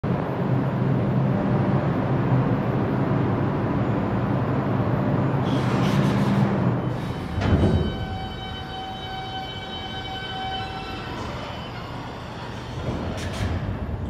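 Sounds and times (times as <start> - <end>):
wheels rumbling on rail: 0.0 - 14.0.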